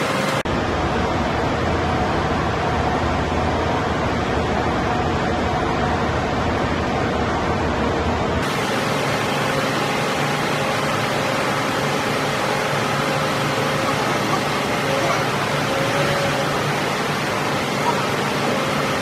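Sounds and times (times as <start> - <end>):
hydraulic unit rushing noise: 6.3 - 19.0.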